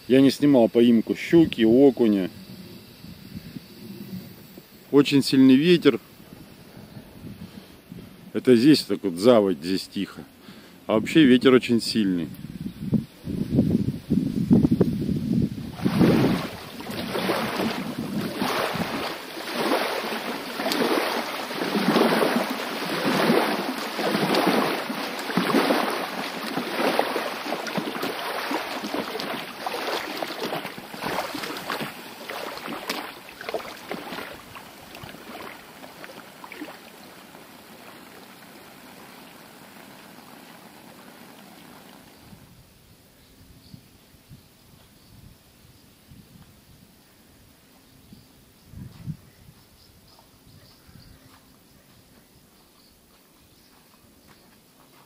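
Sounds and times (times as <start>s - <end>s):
waves lapping on sand: 15.7s - 42.3s.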